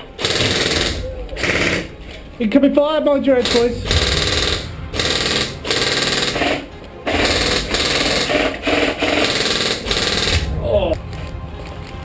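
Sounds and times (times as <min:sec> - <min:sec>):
airsoft rifles firing full auto: 0:00.0 - 0:01.9, 0:03.4 - 0:10.5.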